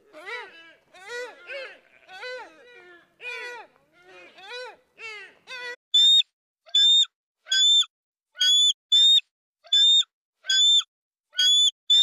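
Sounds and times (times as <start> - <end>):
eagle calling: 6.0 - 12.0.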